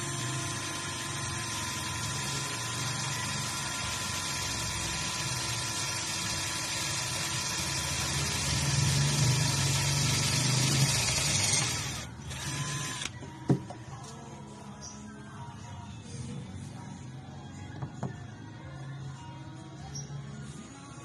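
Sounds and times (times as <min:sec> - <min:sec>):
cordless drill drilling: 0:00.0 - 0:13.2.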